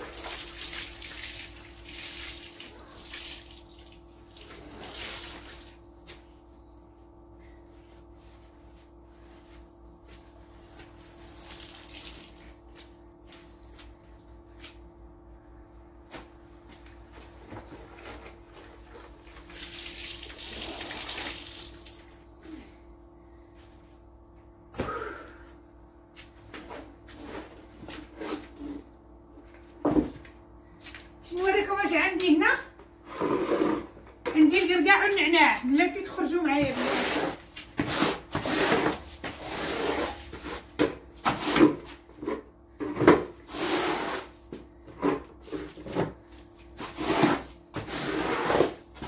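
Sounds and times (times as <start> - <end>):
water splashing in a bucket: 0.0 - 6.0, 11.0 - 13.8, 19.4 - 22.4
faint steady hum: 0.0 - 36.6.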